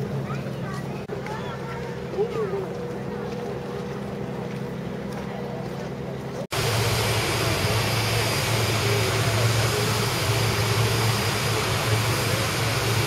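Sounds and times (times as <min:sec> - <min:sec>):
aircraft machinery hum and hiss: 0:01.8 - 0:13.0.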